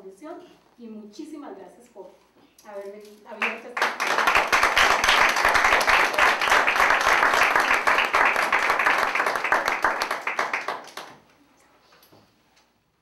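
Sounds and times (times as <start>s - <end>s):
audience applauding: 3.4s - 11.2s.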